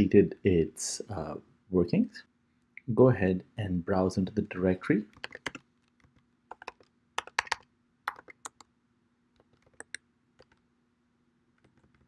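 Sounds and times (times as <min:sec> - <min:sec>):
faint steady hum: 0:00.0 - 0:12.0
keyboard keystroke clicks: 0:06.5 - 0:08.7.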